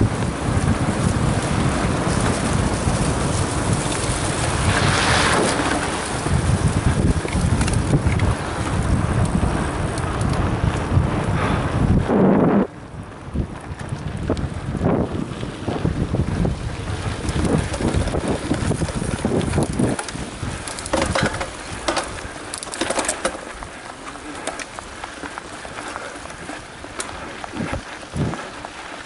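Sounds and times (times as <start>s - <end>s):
bike clicks and rattles: 0.0s - 12.1s, 12.7s - 29.0s
low rumble of tyres on dirt: 0.0s - 29.0s
wind buffeting microphone: 0.0s - 29.0s.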